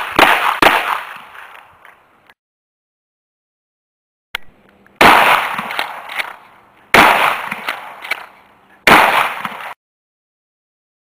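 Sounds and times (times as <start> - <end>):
shotgun shots with echo: 0.0 - 1.3, 5.0 - 8.3, 8.9 - 9.8.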